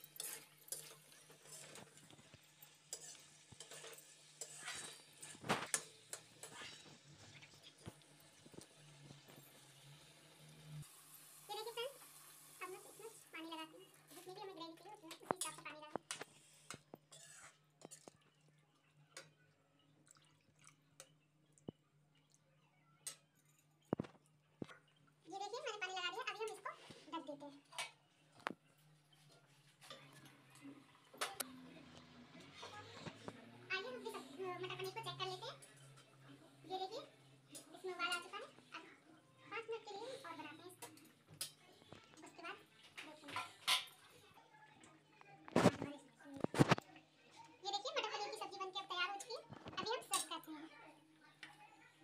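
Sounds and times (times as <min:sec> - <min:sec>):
spoon clinking against pot: 0:00.0 - 0:07.0
spatula scraping metal pan: 0:00.0 - 0:09.7, 0:15.4 - 0:18.1
faint frying sizzle: 0:00.0 - 0:19.4, 0:25.3 - 0:51.7
water pouring: 0:19.9 - 0:21.1.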